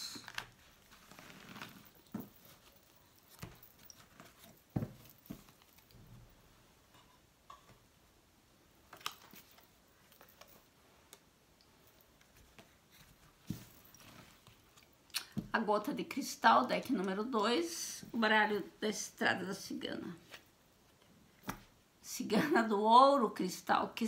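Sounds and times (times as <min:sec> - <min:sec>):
cards rustling: 0:00.0 - 0:05.9.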